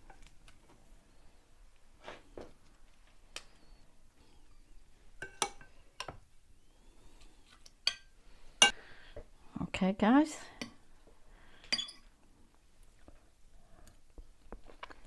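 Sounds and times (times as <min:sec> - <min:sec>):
metal spoon clinking on dishes: 0:05.2 - 0:06.2, 0:07.8 - 0:08.8, 0:11.7 - 0:12.0.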